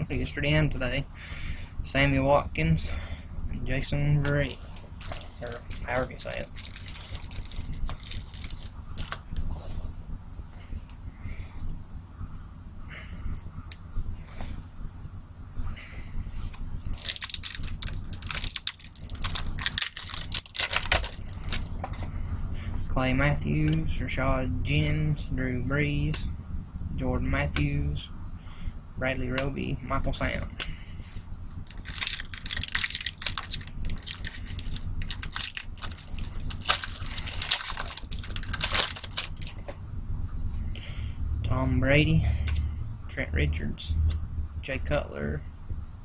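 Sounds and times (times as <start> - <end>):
low steady hum: 0.0 - 46.0
foil wrapper crinkling and tearing: 5.0 - 9.2, 16.8 - 21.7, 31.6 - 39.6.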